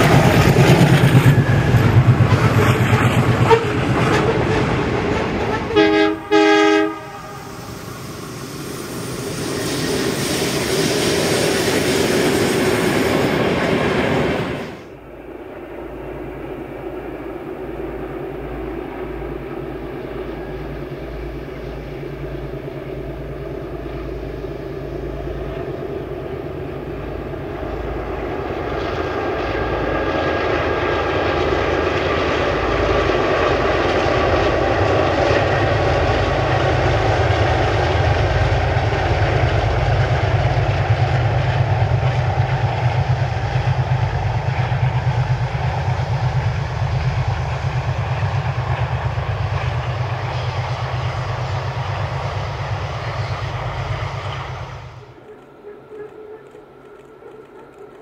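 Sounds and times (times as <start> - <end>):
diesel locomotive rumbling: 0.0 - 58.0.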